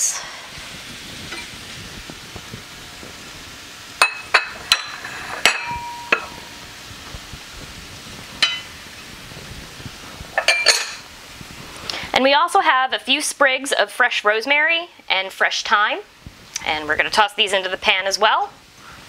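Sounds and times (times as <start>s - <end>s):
vegetables frying in a pan: 0.0s - 19.0s
ceramic dishes clinking: 4.0s - 6.5s, 10.4s - 11.0s.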